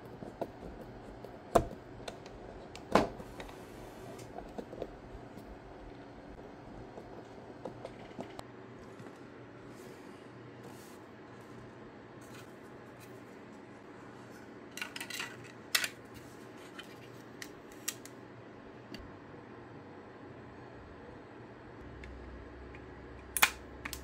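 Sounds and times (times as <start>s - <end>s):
steady low hum: 0.0s - 24.0s
plastic parts clicking: 14.8s - 16.0s.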